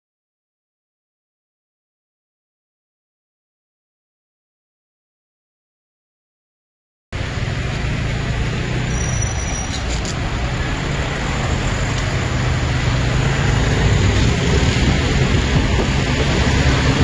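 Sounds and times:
motor scooter engines: 0:07.2 - 0:17.0
street traffic: 0:07.2 - 0:17.0.

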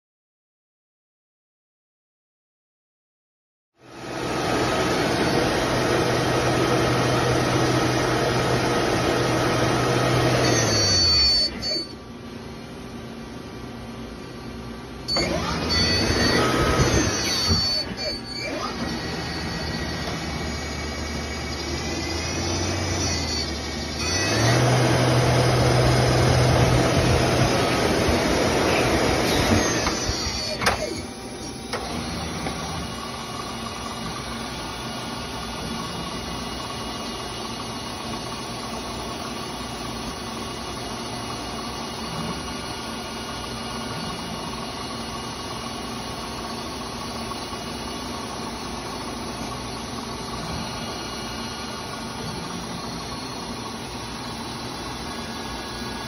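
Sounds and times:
lathe motor hum: 0:03.9 - 0:10.6, 0:18.6 - 0:30.4, 0:31.0 - 0:56.0
rushing noise of machining: 0:03.9 - 0:11.8, 0:15.1 - 0:56.0.

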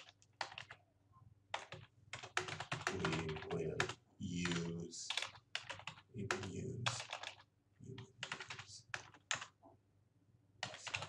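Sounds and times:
person speaking indistinctly: 0:02.7 - 0:05.2, 0:06.0 - 0:09.0, 0:10.7 - 0:11.0.

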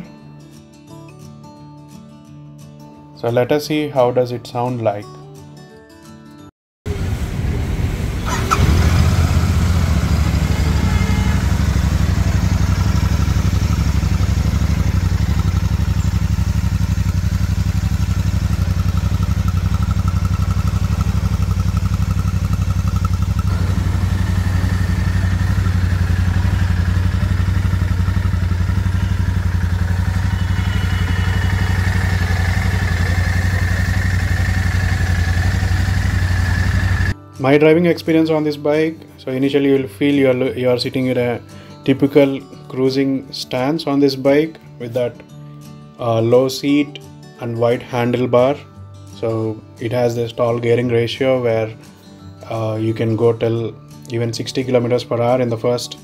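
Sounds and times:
motorcycle engine idling: 0:06.9 - 0:37.2
electric starter cranking: 0:08.2 - 0:27.1.

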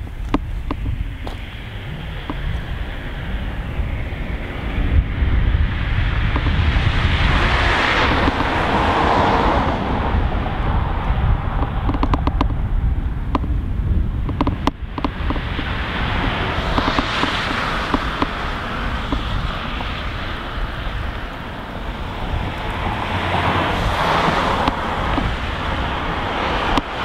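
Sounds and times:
wind rumbling on microphone: 0:00.0 - 0:27.0
sharp clicks: 0:08.1 - 0:08.6, 0:11.6 - 0:12.6, 0:14.2 - 0:18.4.

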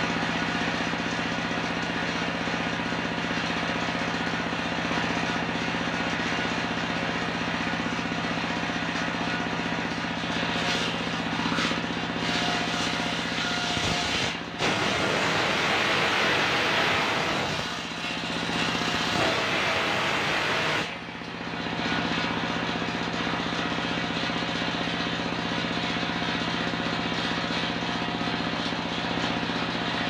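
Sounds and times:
circular saw cutting wood: 0:10.4 - 0:21.0.

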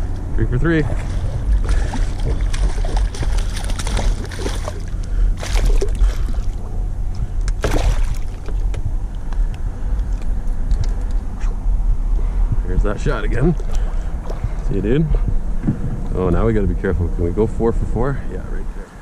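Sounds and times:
water sloshing and splashing: 0:00.0 - 0:11.3, 0:13.3 - 0:14.7
steady low rumble: 0:00.0 - 0:19.0.

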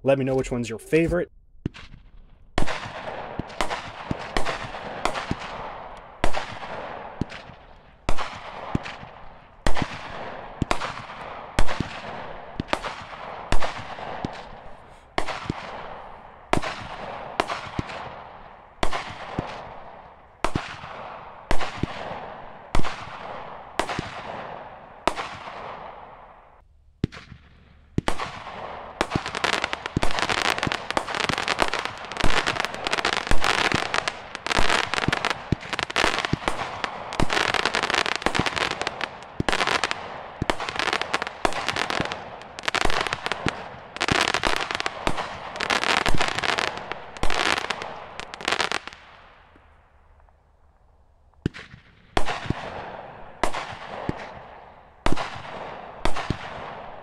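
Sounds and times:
firework stars crackling: 0:00.0 - 0:50.4
firework shots banging: 0:00.3 - 0:26.4, 0:27.0 - 0:49.6, 0:51.4 - 0:57.0.

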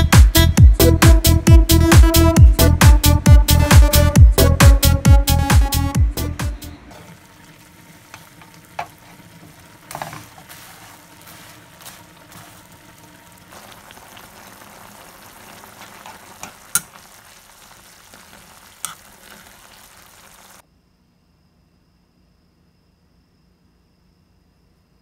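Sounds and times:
food sizzling in a frying pan: 0:06.9 - 0:20.6
metal utensil clicking on pan: 0:16.4 - 0:17.0.

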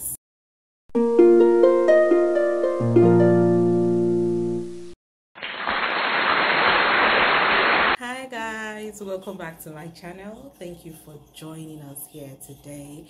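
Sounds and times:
plucked string intro music: 0:00.9 - 0:05.0
steady loud hiss: 0:05.6 - 0:08.0.

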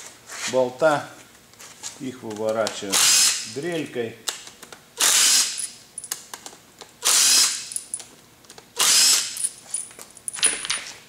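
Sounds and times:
pneumatic drill bursts: 0:03.0 - 0:03.4, 0:05.0 - 0:05.6, 0:07.0 - 0:07.7, 0:08.8 - 0:09.4.

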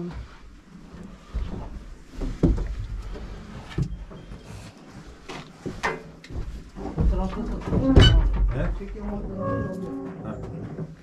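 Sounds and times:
knocks and bumps in metal truck: 0:06.8 - 0:11.0.

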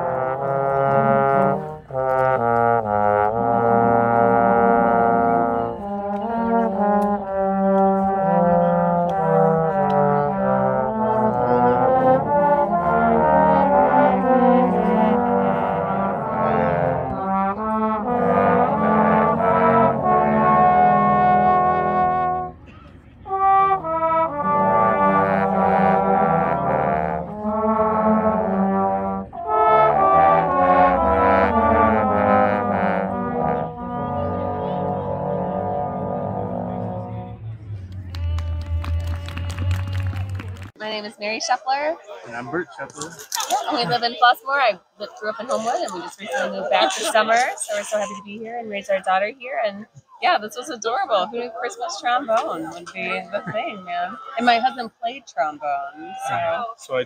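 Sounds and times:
trombone choir playing chords: 0:00.0 - 0:38.1, 0:45.3 - 0:48.1.

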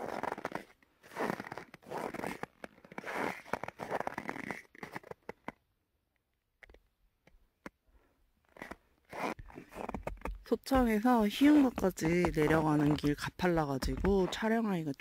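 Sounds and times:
boots crunching in snow: 0:00.0 - 0:05.1, 0:08.6 - 0:14.5.

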